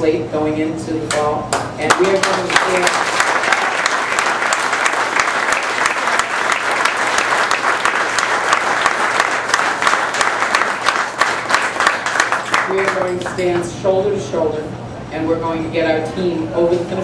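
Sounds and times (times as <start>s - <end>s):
crowd applauding: 1.9s - 13.4s.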